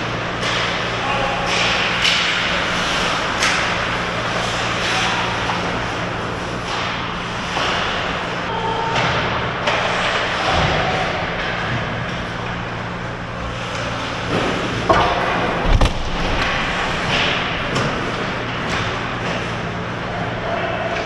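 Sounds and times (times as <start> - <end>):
steady low hum: 0.0 - 21.0
hockey stick hitting puck: 0.3 - 5.5
skates scraping ice: 0.4 - 8.2.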